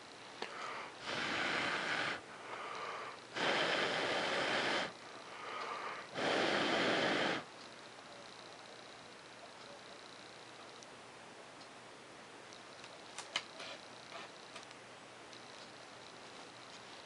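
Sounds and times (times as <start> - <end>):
person breathing heavily: 0.4 - 7.5.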